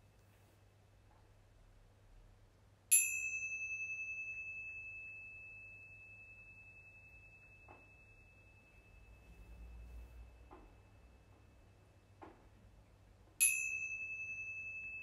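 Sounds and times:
high wavering ringing tone: 2.9 - 12.0, 13.4 - 15.0
small cymbals struck: 2.9 - 15.0.

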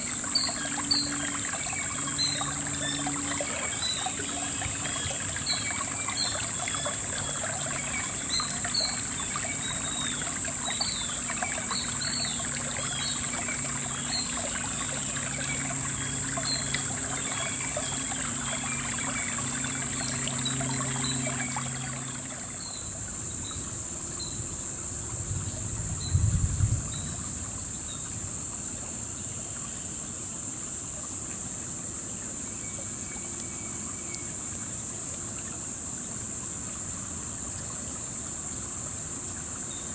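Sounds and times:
high-pitched insect drone: 0.0 - 22.9
water trickling over stones: 0.0 - 39.9.

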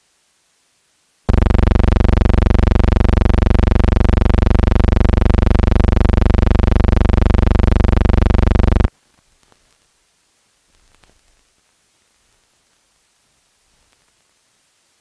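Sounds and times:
loud electrical buzz: 1.3 - 8.9.

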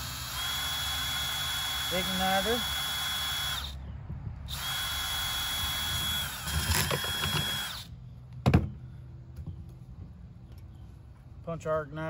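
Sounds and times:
cordless drill whining: 0.0 - 3.8, 4.5 - 7.9.

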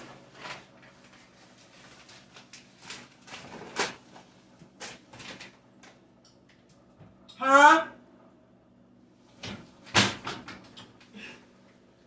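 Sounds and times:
kitchen knocks and rustles: 9.4 - 11.0.

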